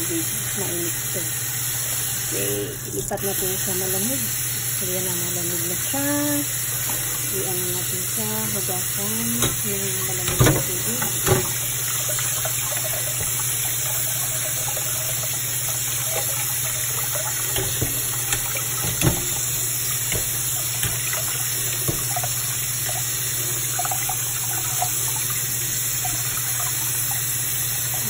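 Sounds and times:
tap water splashing into pot: 0:09.3 - 0:28.0.

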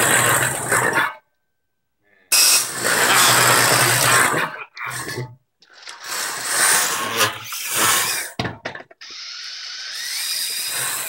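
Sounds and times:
electric motors whirring: 0:09.0 - 0:11.0.

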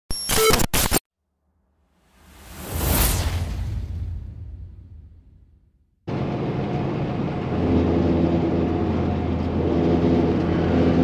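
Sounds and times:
diesel truck engine droning: 0:06.1 - 0:11.0.

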